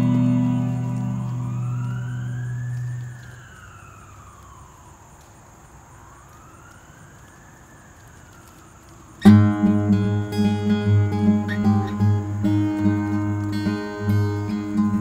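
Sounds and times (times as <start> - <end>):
acoustic guitar music: 0.0 - 3.0, 9.2 - 15.0
faint siren wailing: 0.0 - 15.0.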